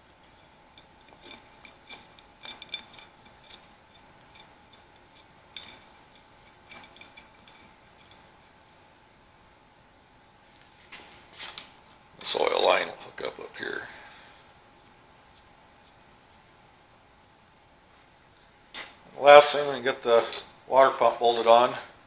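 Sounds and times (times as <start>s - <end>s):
faint steady hum: 0.0s - 22.0s
small metal parts clinking: 0.2s - 8.3s.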